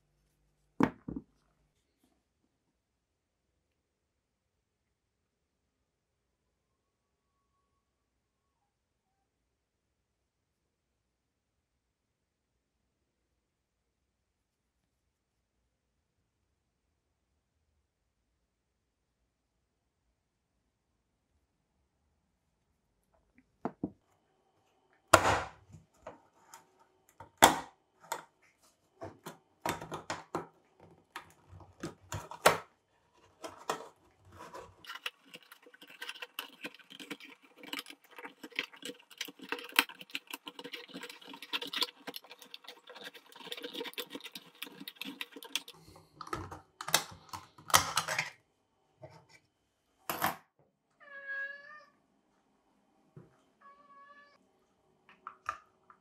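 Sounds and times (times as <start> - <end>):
cat meowing: 51.0 - 52.0, 53.6 - 54.4.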